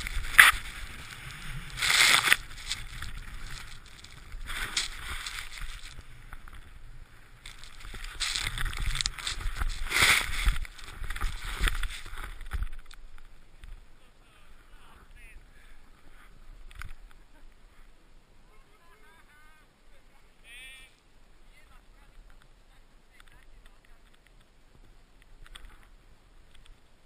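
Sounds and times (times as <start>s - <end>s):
skis swishing through snow: 0.0s - 12.6s
wind rumbling on microphone: 0.0s - 14.0s.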